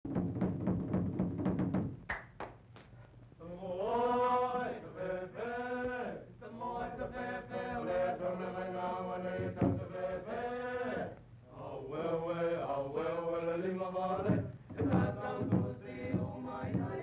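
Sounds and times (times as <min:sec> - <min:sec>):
drum beats: 0:00.0 - 0:02.8, 0:09.3 - 0:10.0, 0:14.1 - 0:17.0.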